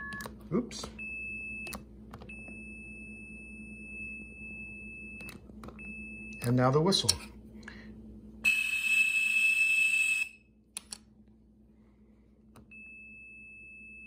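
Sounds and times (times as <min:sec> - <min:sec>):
clicks: 0:10.8 - 0:11.1.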